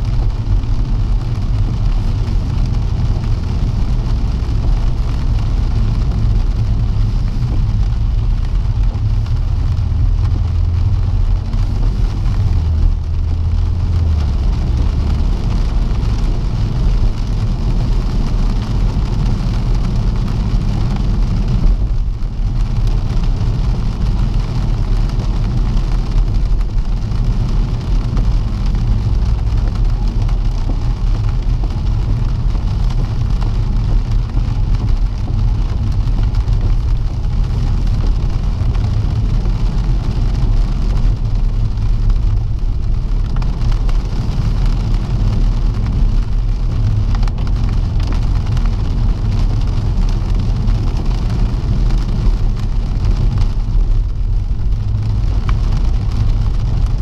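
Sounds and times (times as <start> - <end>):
car engine and tyre rumble: 0.0 - 57.0
rain and spray hiss: 0.0 - 57.0.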